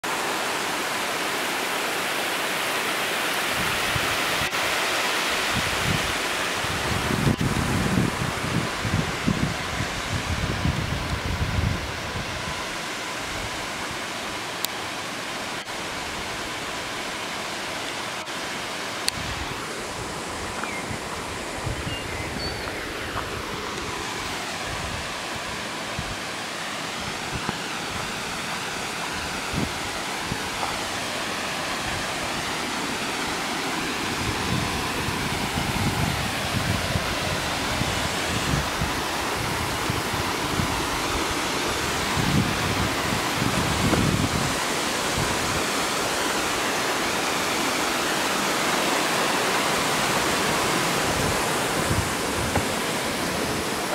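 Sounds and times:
waterfall rushing over rocks: 0:00.0 - 0:53.9.

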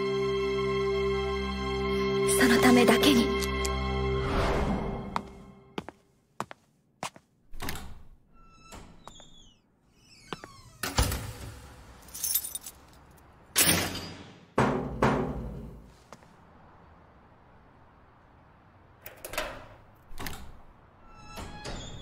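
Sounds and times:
keys jingling: 0:12.0 - 0:13.3.

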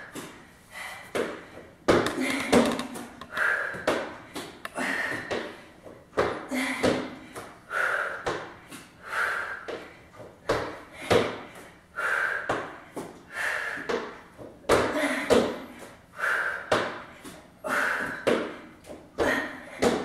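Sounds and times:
sharp forceful breaths: 0:03.2 - 0:05.8, 0:06.5 - 0:14.2, 0:15.5 - 0:20.0.

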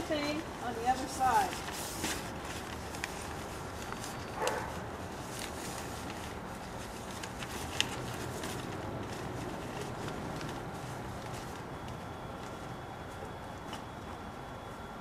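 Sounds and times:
plastic sheeting crinkling: 0:00.0 - 0:14.2
steady outdoor hiss: 0:00.0 - 0:15.0.

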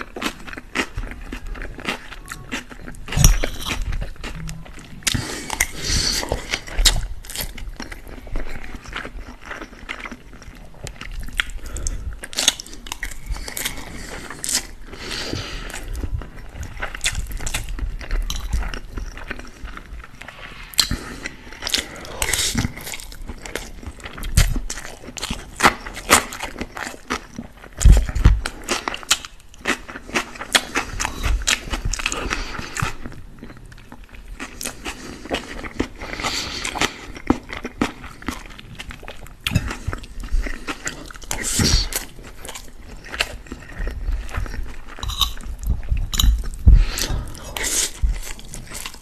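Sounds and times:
chewing and wet mouth sounds: 0:00.0 - 0:49.0
soft low thumps: 0:45.6 - 0:46.9.

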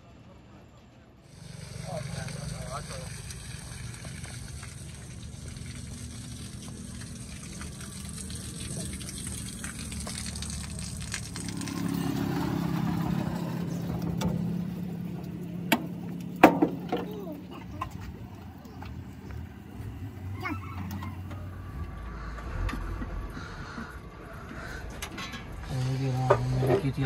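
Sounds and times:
water draining and splashing: 0:01.4 - 0:15.1.

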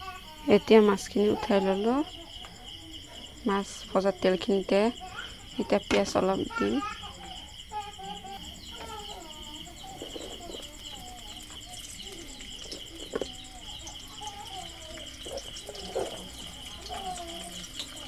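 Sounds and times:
onions frying in oil: 0:08.7 - 0:18.0.

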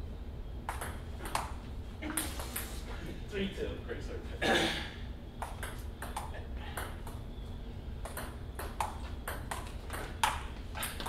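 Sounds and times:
table tennis ball clicking: 0:00.7 - 0:01.5, 0:05.4 - 0:07.2, 0:08.0 - 0:11.0.

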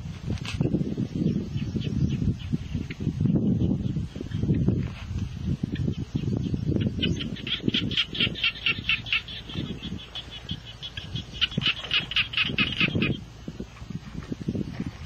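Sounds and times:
bird squawking rapidly: 0:06.8 - 0:13.2.

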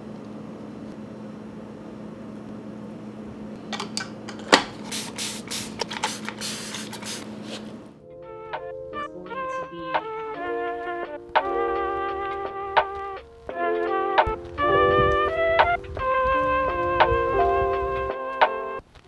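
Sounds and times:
low room hum: 0:00.0 - 0:08.0
spray bottle squirts: 0:04.4 - 0:07.8.

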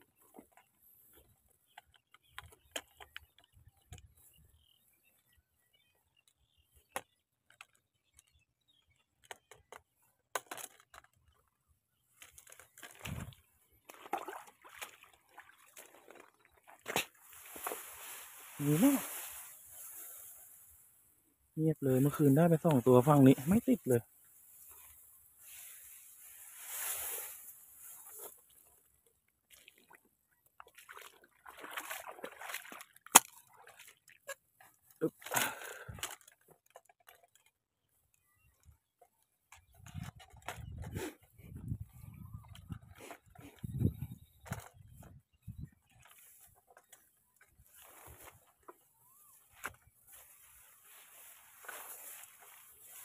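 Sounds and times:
rustling of plants: 0:10.8 - 0:30.0, 0:34.0 - 0:53.0
footsteps squelching in mud: 0:12.7 - 0:19.4, 0:30.6 - 0:34.4, 0:46.0 - 0:53.0
brushing through grass: 0:17.2 - 0:20.8, 0:22.1 - 0:28.6, 0:50.0 - 0:53.0
footsteps: 0:49.6 - 0:53.0.

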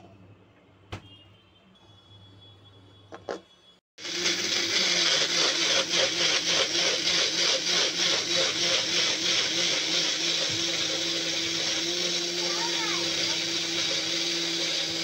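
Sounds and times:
blender whirring: 0:04.0 - 0:15.0.

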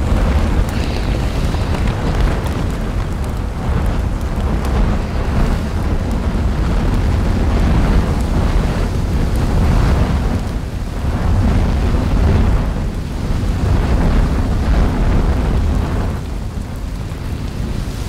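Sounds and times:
lava spattering: 0:00.0 - 0:12.8
volcanic eruption roar: 0:00.0 - 0:18.0.

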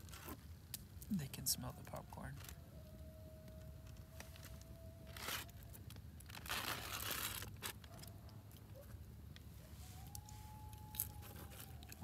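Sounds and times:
foil crinkling and tearing: 0:04.2 - 0:08.1.

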